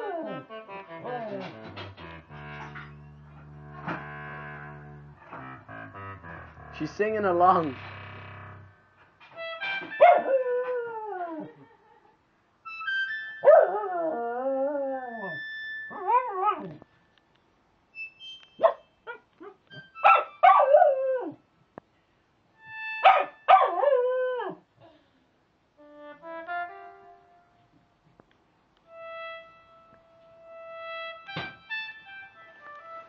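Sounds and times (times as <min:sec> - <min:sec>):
electronic wind instrument notes: 0:00.0 - 0:10.9, 0:12.6 - 0:14.0, 0:22.6 - 0:23.5, 0:25.8 - 0:27.7, 0:28.9 - 0:33.0.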